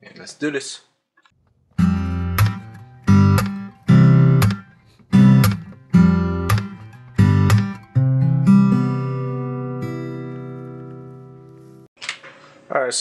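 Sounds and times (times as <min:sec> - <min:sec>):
acoustic guitar strumming chords: 0:01.8 - 0:11.8.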